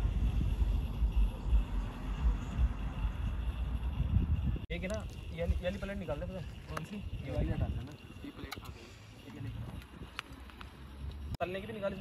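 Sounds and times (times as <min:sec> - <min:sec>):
wind buffeting microphone: 0:00.0 - 0:08.8
moving vehicle rumble: 0:00.0 - 0:12.0.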